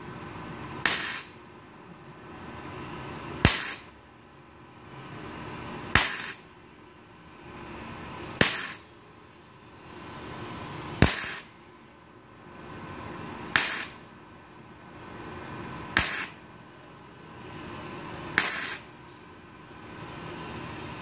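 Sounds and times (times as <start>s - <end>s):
welding arc crackle: 0.9s - 1.3s, 3.4s - 3.9s, 6.0s - 6.4s, 8.4s - 8.8s, 11.0s - 11.5s, 13.6s - 14.0s, 16.0s - 16.4s, 18.4s - 18.8s.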